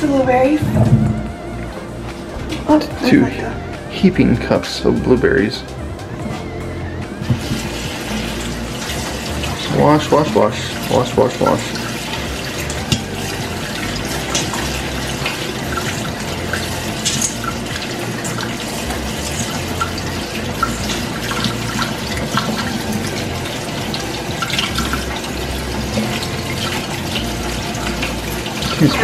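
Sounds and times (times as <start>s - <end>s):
faucet running into sink: 7.2s - 29.0s.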